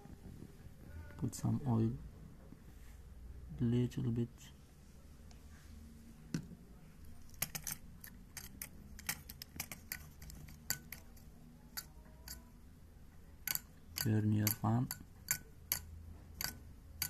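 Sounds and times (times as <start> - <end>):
plastic fan blades clicking: 7.3 - 12.5, 13.4 - 17.0.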